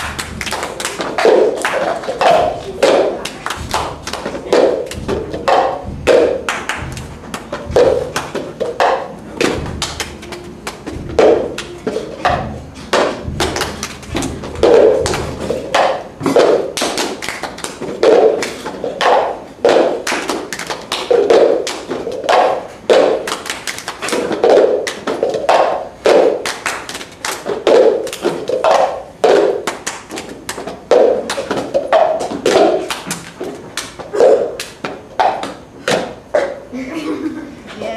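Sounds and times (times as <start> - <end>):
heavy cup thud: 0.0 - 17.2
hands clapping: 0.0 - 36.1
plastic cups tapping on floor: 0.0 - 36.7.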